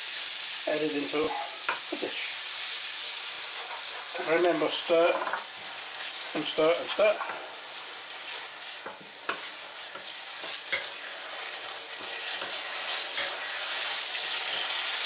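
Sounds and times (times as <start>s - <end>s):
food sizzling in a pan: 0.0s - 15.0s
spatula scraping and tapping pan: 3.5s - 4.1s, 7.0s - 7.5s, 8.2s - 11.2s, 11.9s - 14.7s.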